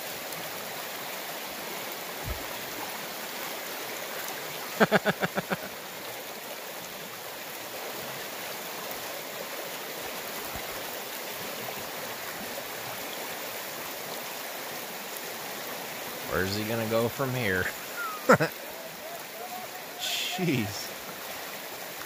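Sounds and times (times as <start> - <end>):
river water flowing over cobbles: 0.0 - 22.0
person's voice: 16.3 - 18.5, 19.4 - 20.9.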